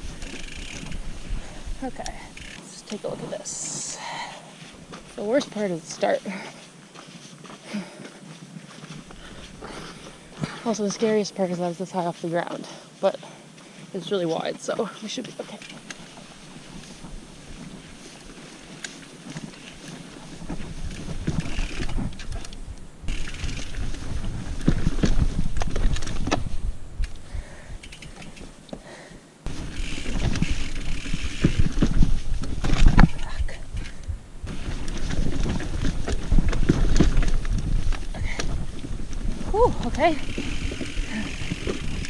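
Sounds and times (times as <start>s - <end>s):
bike knocking and rattling: 0.0s - 11.6s, 14.1s - 42.0s
wind buffeting microphone: 20.3s - 28.2s, 29.4s - 42.0s.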